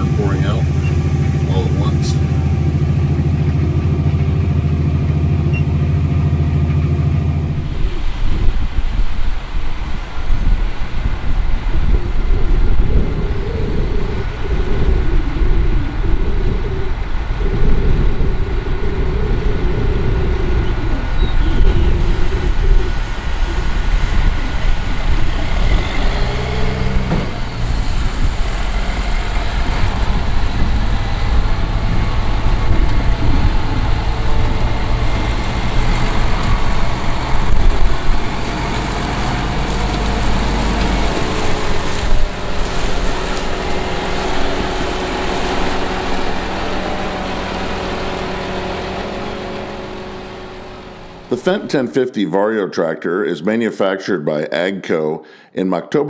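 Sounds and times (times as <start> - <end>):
tractor diesel engine under load: 0.0 - 52.6
grain pouring from auger spout: 34.8 - 51.3.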